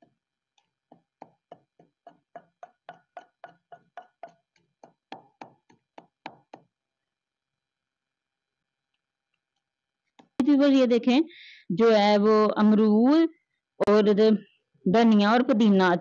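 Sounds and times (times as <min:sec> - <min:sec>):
pestle pounding in stone mortar: 0:00.8 - 0:06.7.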